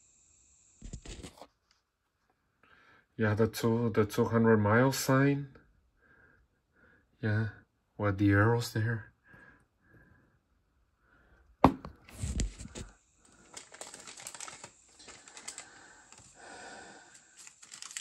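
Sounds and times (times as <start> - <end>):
packaging rustling: 12.0 - 18.0
plastic toy pieces clicking: 17.4 - 18.0.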